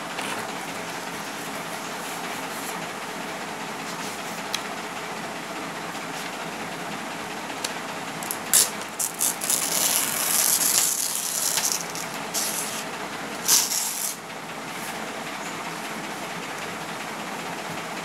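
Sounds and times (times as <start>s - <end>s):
paper rustling and crinkling: 8.2s - 12.8s.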